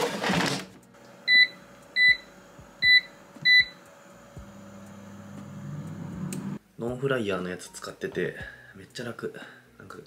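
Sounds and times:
air fryer humming: 1.0 - 6.6
touch panel beeps: 1.3 - 3.8.

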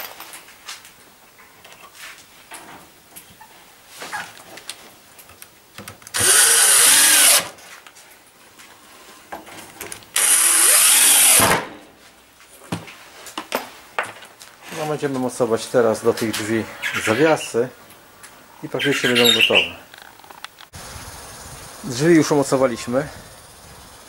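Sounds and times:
drill driving screws into wood: 6.1 - 7.6, 10.2 - 11.7.

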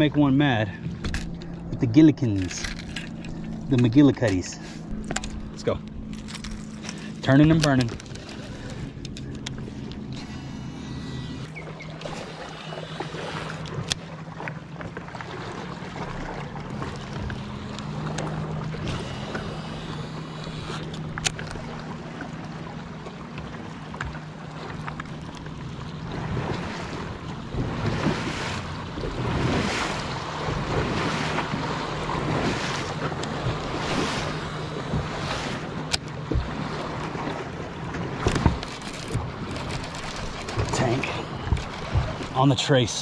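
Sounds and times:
water splashing: 0.0 - 43.0
electric motor humming: 4.7 - 14.1, 16.0 - 26.1, 38.0 - 42.4
sharp clicks: 38.3 - 42.4.

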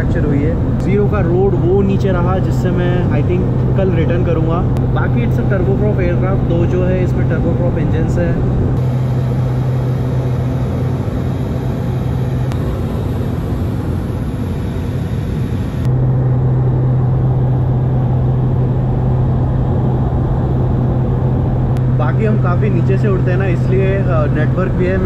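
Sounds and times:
engine and airflow rush: 0.0 - 25.0
low propeller hum: 0.0 - 25.0.

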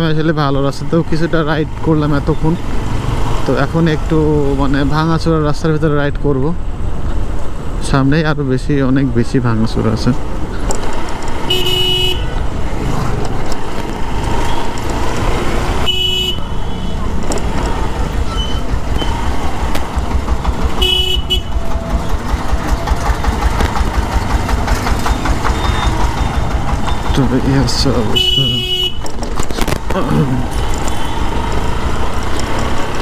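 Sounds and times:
motorcycle engine rumble: 10.1 - 33.0
vehicle horn honks: 11.5 - 12.4, 15.8 - 17.0, 20.8 - 21.6, 28.1 - 29.0.

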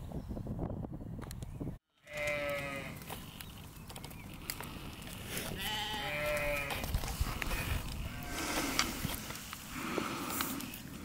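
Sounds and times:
sheep bleating: 2.0 - 3.0, 5.6 - 6.9.

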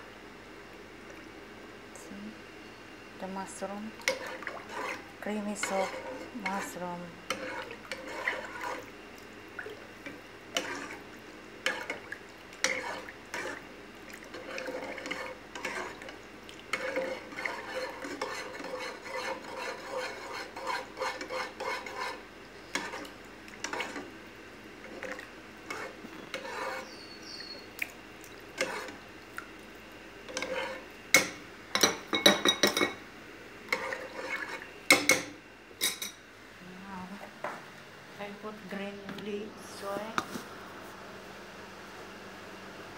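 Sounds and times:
metal ladle scraping saucepan: 4.0 - 8.9, 10.5 - 11.0, 12.6 - 13.6, 14.3 - 24.1, 24.9 - 27.5, 28.6 - 29.0, 30.3 - 31.3, 33.7 - 35.2.

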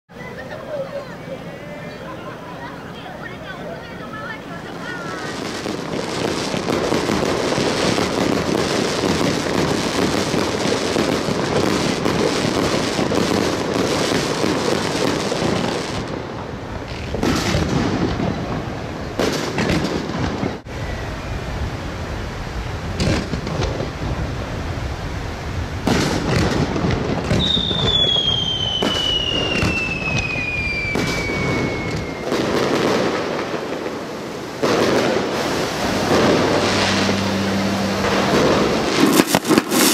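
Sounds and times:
fireworks exploding: 0.1 - 39.9
sharp firework bangs: 5.2 - 16.2, 16.8 - 20.7, 23.0 - 24.0, 25.8 - 39.9
whistle falling in pitch: 27.4 - 32.3.

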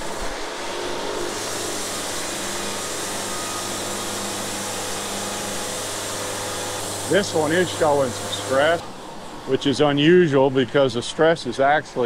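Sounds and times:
band saw blade cutting wood: 0.0 - 8.9
motor hum: 0.0 - 10.7.

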